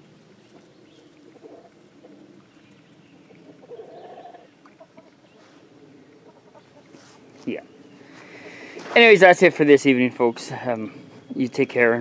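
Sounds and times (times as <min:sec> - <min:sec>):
hens clucking: 0:00.4 - 0:09.4
hen drawn-out call: 0:01.2 - 0:02.4, 0:03.4 - 0:07.2.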